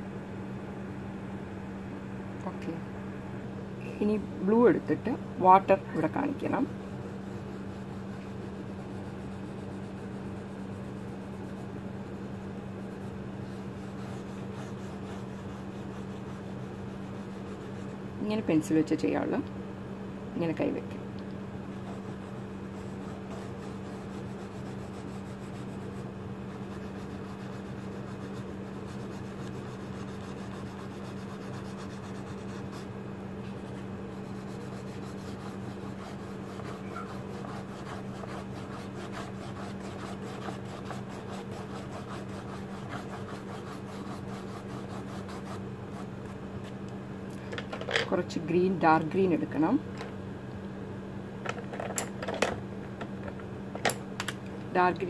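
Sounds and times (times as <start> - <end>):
constant low hum: 0.0 - 55.0
pencil shading on paper: 6.0 - 18.0, 21.8 - 32.9, 33.6 - 46.1.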